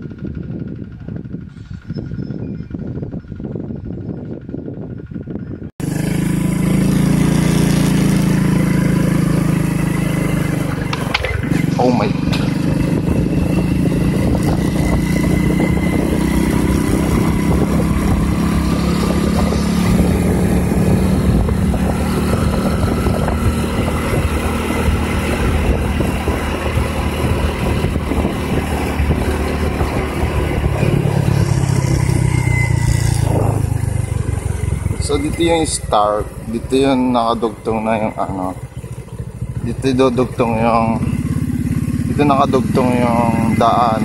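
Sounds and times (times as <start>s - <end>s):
vehicle engine running: 0.0s - 44.0s
wind and road noise: 0.0s - 44.0s.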